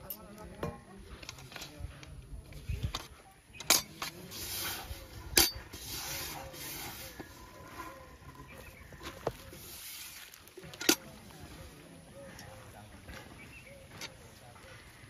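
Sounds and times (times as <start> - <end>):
clanks on metal bucket: 3.6 - 4.3
hand stirring grainy bait: 3.9 - 11.7.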